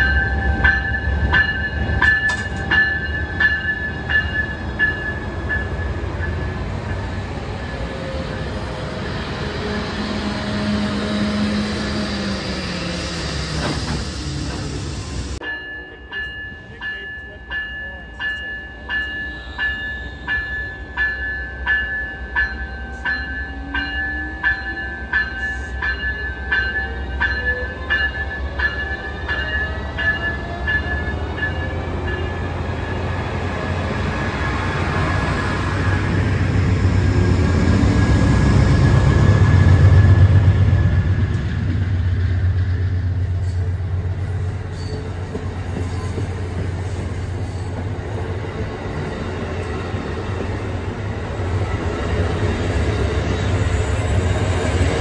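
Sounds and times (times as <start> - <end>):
passenger cars rolling: 0.0 - 15.4
locomotive bell ringing: 0.0 - 55.0.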